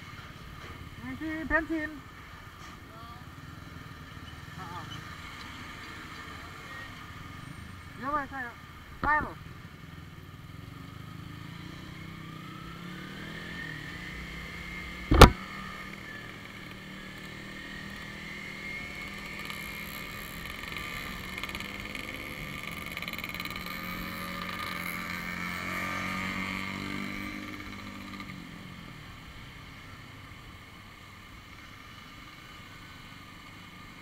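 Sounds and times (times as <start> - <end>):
motorcycle engine revving: 9.8 - 29.3
sharp loud knock: 15.1 - 15.4.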